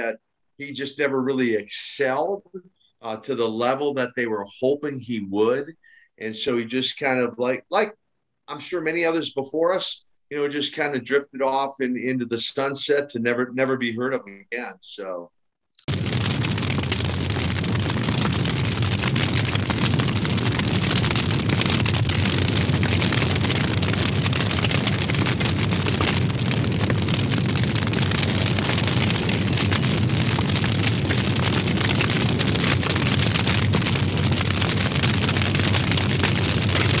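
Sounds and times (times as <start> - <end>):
fire roaring and crackling: 15.8 - 37.0.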